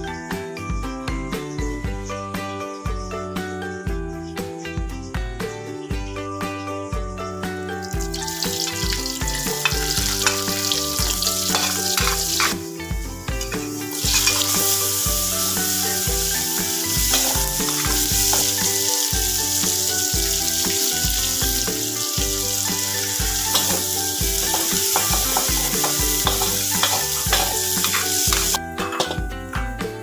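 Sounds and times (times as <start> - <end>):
background music with beat: 0.0 - 30.0
vegetables sizzling in hot oil: 7.9 - 29.2
metal spatula scraping pan: 8.6 - 12.6, 13.6 - 29.2.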